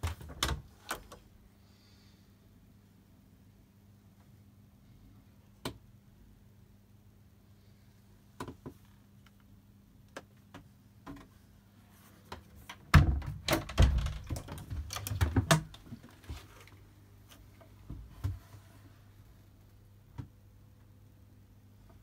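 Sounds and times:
wooden door knocks and thumps: 0:12.9 - 0:15.8.

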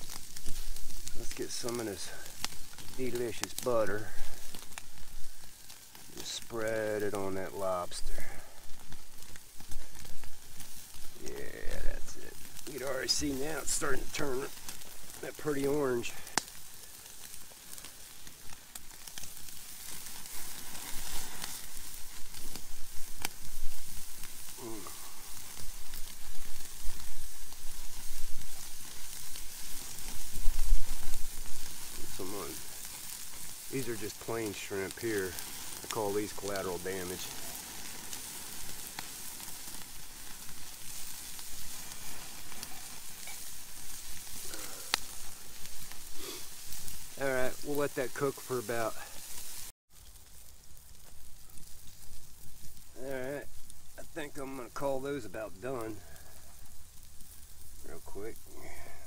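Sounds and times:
fire crackles: 0:00.0 - 0:59.0
food sizzling on a grill: 0:00.0 - 0:59.0
sharp pops: 0:08.8 - 0:49.1.

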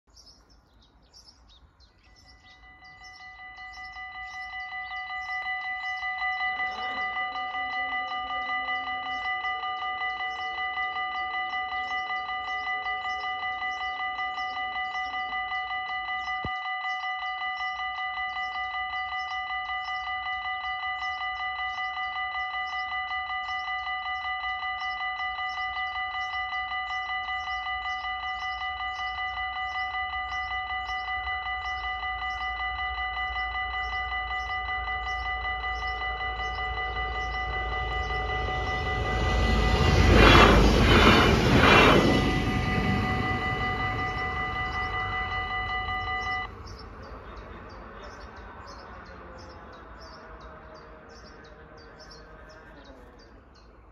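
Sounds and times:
level crossing warning bells: 0:01.4 - 0:53.9
diesel train rumbling: 0:17.0 - 0:52.2.

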